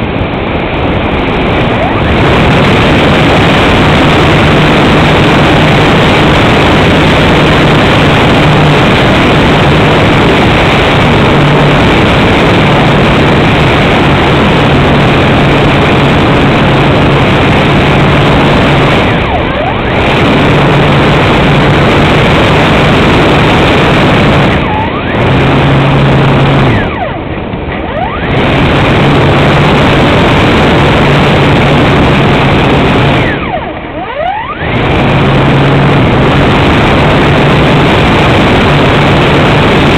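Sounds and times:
wind rushing on microphone: 0.0s - 39.9s
model plane motor hum: 1.2s - 27.0s, 27.8s - 39.9s.

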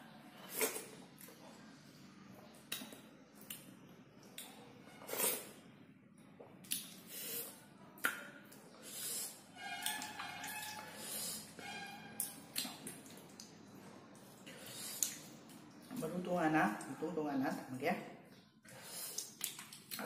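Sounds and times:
fingers squishing wet fruit: 6.4s - 8.8s, 9.6s - 11.0s, 11.6s - 16.1s, 18.3s - 20.0s.

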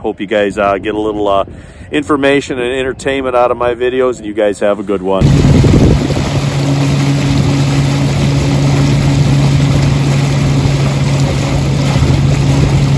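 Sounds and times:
boat motor humming: 5.2s - 12.9s
water rushing and churning: 5.2s - 12.9s.

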